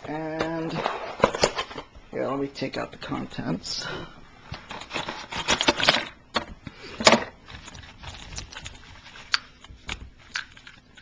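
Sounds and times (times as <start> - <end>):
plastic bag crinkling: 7.4 - 11.0.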